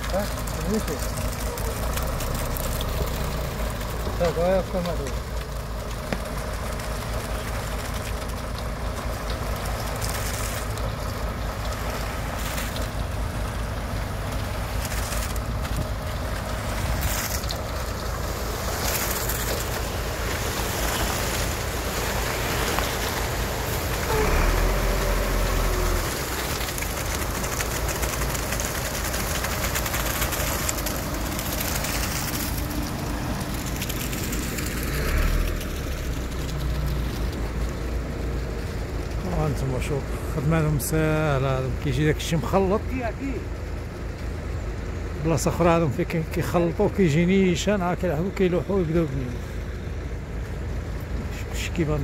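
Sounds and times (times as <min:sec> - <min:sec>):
wet concrete sliding down chute: 0:00.0 - 0:44.4
diesel engine running: 0:00.0 - 0:52.0.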